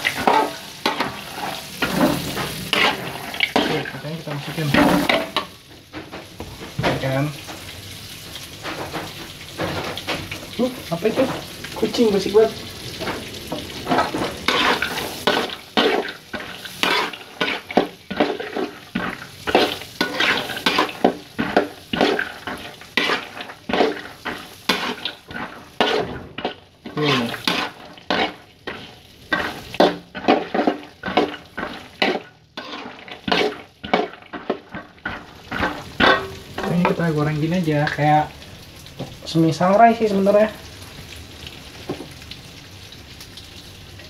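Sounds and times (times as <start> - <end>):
metal spatula scraping a wok: 0.0 - 7.7, 12.9 - 37.5
oil sizzling: 0.0 - 44.0.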